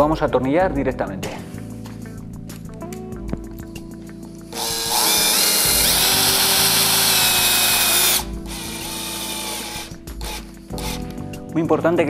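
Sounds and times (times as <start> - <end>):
cordless drill driving screw: 4.5 - 11.2.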